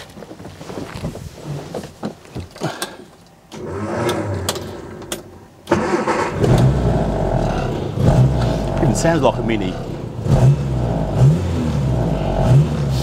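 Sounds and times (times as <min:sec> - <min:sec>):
starter motor cranking: 0:03.5 - 0:10.1
car engine running loudly: 0:06.4 - 0:13.0.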